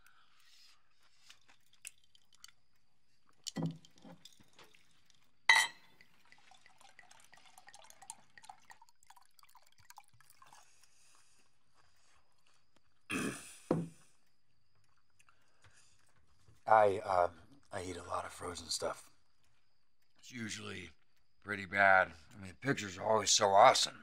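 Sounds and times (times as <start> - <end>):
cutlery and glassware clinking: 5.5 - 5.9.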